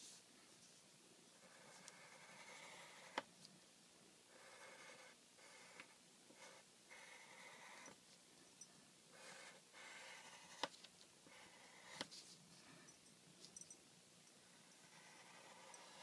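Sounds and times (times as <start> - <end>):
pencil scratching on paper: 1.3 - 3.3, 4.3 - 8.0, 9.1 - 12.3, 14.6 - 16.0.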